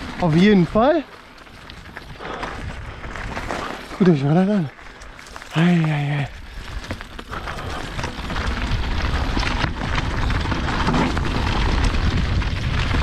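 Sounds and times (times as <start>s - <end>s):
tyres crunching over gravel: 0.0s - 13.0s
wind rushing over microphone: 1.7s - 3.9s, 6.2s - 13.0s.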